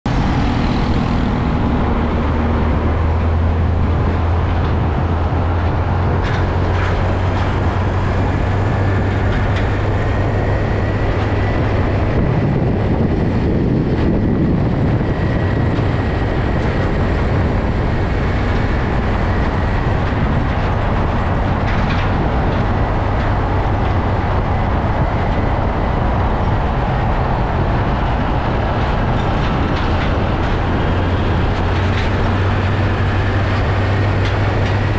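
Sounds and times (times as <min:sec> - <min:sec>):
truck diesel engine drone: 0:00.0 - 0:34.9
tyres rumbling on asphalt: 0:00.0 - 0:34.9.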